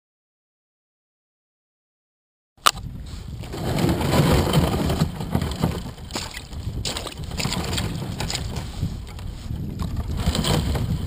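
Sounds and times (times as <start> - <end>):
kayak hull cracking thin ice: 2.6 - 11.0.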